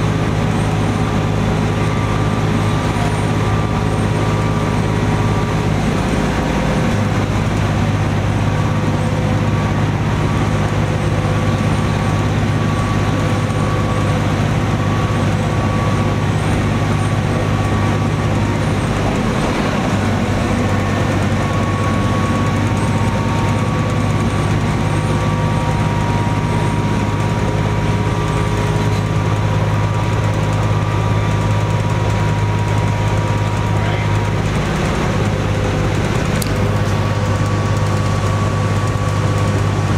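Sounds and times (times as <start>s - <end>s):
faint whine: 0.0s - 30.0s
bus diesel engine drone: 0.0s - 39.9s
road noise: 0.0s - 39.9s.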